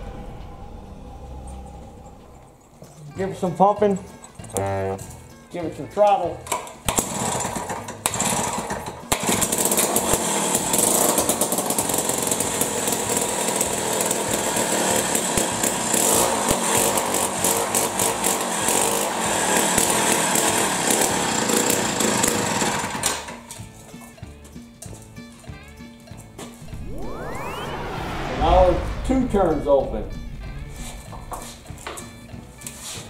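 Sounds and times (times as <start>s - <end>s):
two-stroke ice auger engine running: 6.9s - 23.4s.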